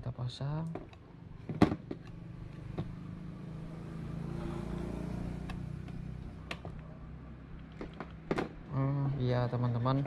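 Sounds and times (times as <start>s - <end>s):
engine low hum: 1.1s - 8.7s.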